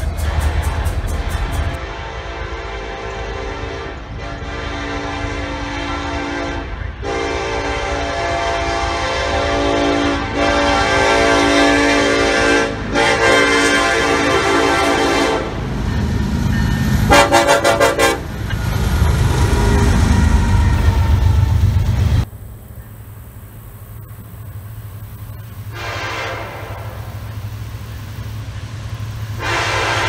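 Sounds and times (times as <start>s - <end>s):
low rumble of train: 0.0s - 30.0s
locomotive air horn blasts: 1.3s - 15.6s, 17.1s - 18.4s, 25.7s - 27.3s, 29.3s - 30.0s.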